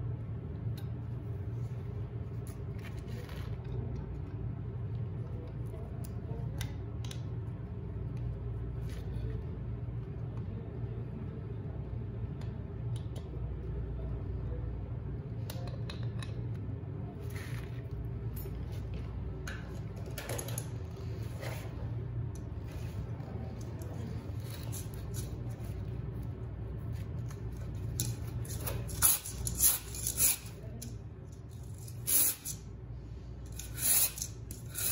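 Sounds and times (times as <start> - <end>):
steady low hum: 0.0 - 34.9.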